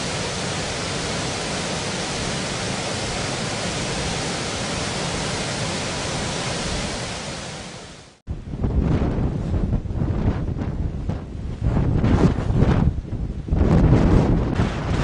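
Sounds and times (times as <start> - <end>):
floodwater rushing through spillway: 0.0 - 8.2.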